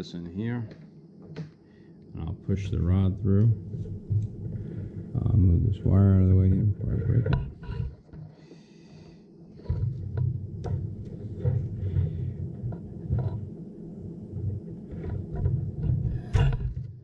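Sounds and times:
handling rumbling and knocking: 9.6 - 13.6.

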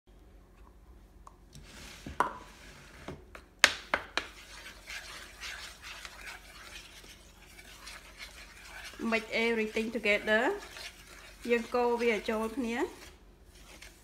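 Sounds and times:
spoon scraping plastic bowl: 4.2 - 14.0.

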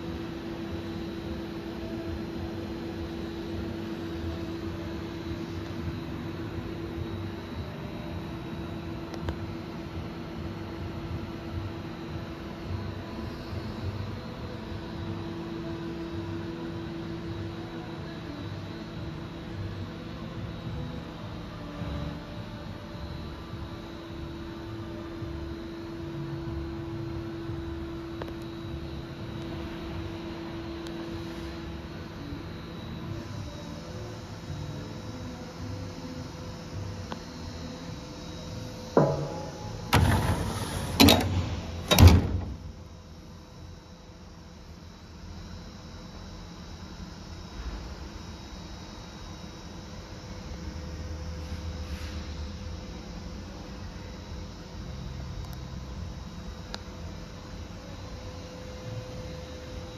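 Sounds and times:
machine fan hum: 0.0 - 59.9.

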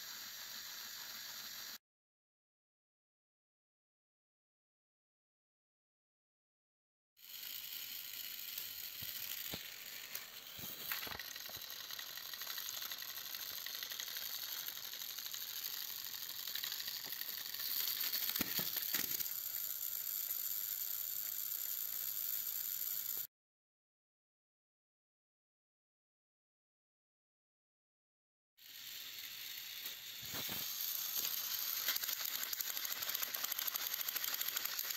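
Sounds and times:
toy train motors whirring: 0.0 - 1.8, 7.2 - 23.3, 28.6 - 34.9.

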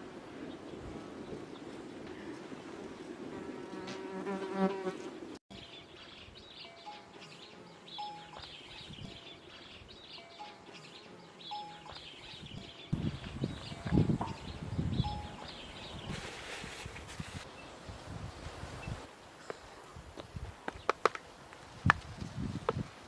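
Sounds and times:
bird notes: 5.5 - 16.1.

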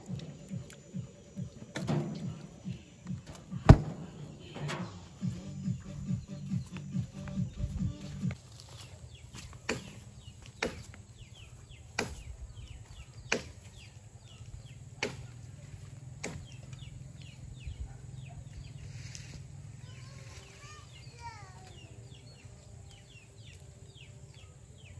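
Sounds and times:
steady low hum: 0.0 - 8.4
birds chirping: 0.0 - 24.9.

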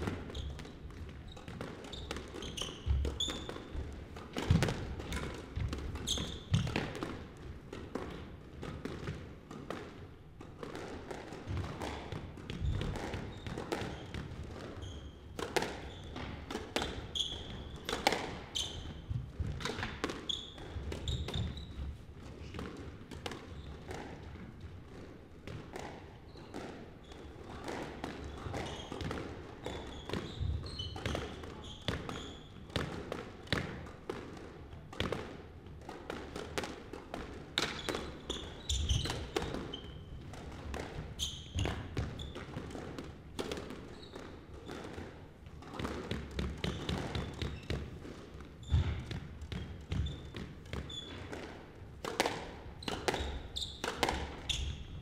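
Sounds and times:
sneakers squeaking on wood floor: 0.0 - 6.9, 12.2 - 22.0, 26.2 - 27.4, 28.2 - 32.9, 37.6 - 40.3, 41.0 - 43.0, 43.6 - 55.0
squash ball cracks: 41.6 - 54.5.

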